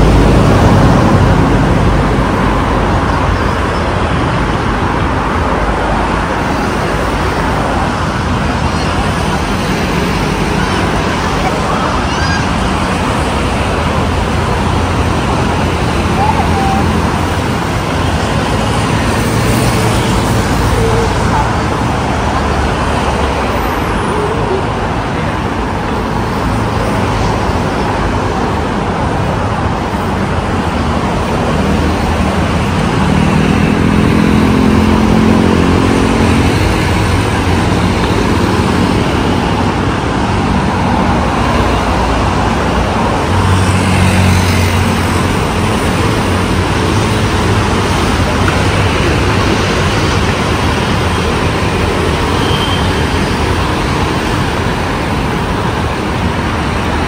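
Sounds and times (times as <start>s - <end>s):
loud engine passing: 0.0s - 3.3s, 30.9s - 57.0s
road traffic: 0.0s - 57.0s.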